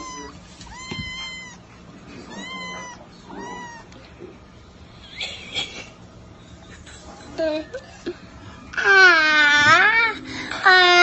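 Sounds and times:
kitten meowing: 0.0s - 4.0s
kitten squealing: 0.0s - 4.0s.

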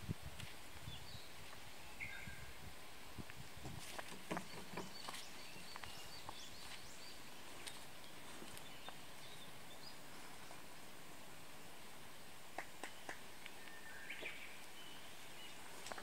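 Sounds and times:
open air hiss: 0.0s - 16.0s
soft rustles and thumps: 3.6s - 6.8s.

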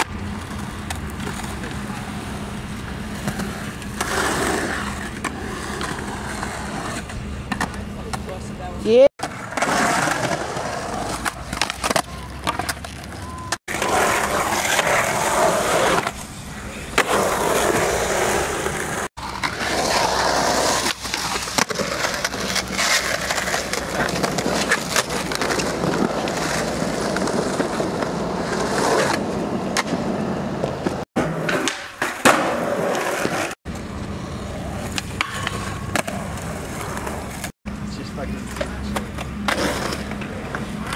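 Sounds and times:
skateboard sliding on rail: 0.0s - 7.7s, 9.2s - 37.5s, 39.3s - 40.9s
skateboard wheels rolling on concrete: 0.0s - 40.9s
skateboard popping and landing: 9.2s - 16.2s, 16.9s - 37.5s.

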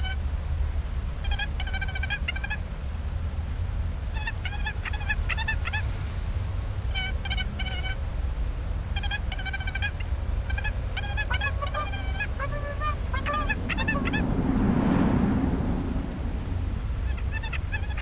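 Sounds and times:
steady low rumble: 8.0s - 18.0s.

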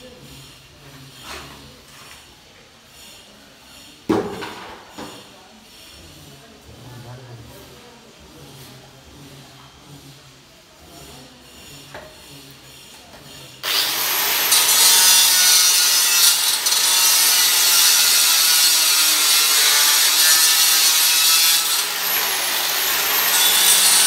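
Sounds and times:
marble cutter grinding stone: 8.4s - 24.0s.

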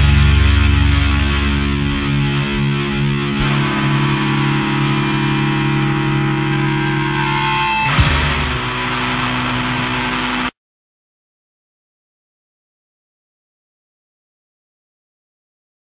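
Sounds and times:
distorted electric guitars and bass: 0.0s - 10.6s
sharp drum hit: 7.9s - 8.8s.

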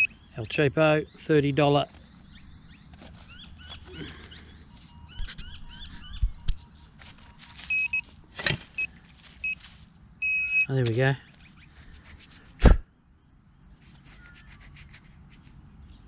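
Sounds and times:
pinpointer scraping through soil: 1.8s - 12.6s, 13.8s - 16.0s
short high beeps: 7.7s - 8.1s, 10.2s - 10.7s.

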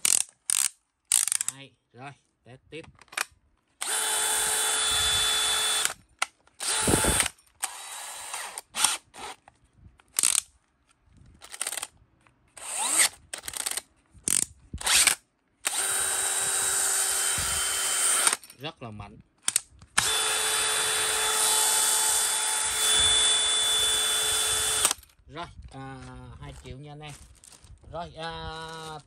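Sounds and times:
hammer drill running unloaded: 3.8s - 6.0s, 6.6s - 9.4s, 14.8s - 18.4s, 20.0s - 25.0s
sharp clicks: 19.4s - 20.2s.

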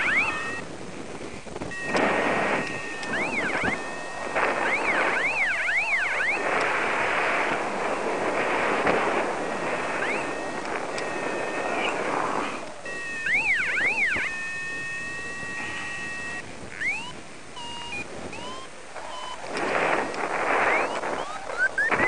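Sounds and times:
steady high beeps: 0.0s - 0.6s, 1.7s - 6.6s, 9.1s - 19.5s
variometer chirping tone: 0.0s - 0.7s, 1.6s - 6.7s, 8.0s - 22.0s
wind on microphone: 0.0s - 22.0s.

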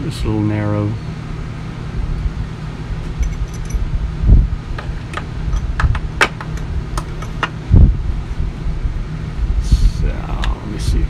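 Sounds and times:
metal engine parts clinking: 3.0s - 3.9s, 4.8s - 7.6s.

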